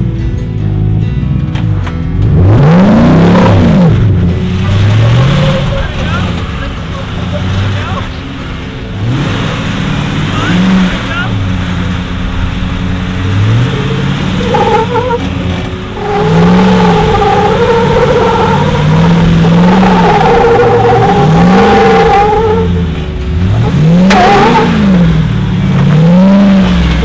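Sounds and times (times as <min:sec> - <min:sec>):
off-road vehicle engine revving: 0:00.0 - 0:27.0
wavering whine: 0:15.8 - 0:23.6.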